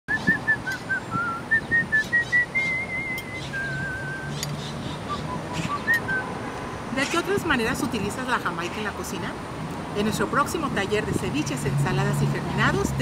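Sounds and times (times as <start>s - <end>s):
person whistling a tune: 0.1s - 4.4s, 5.1s - 6.3s.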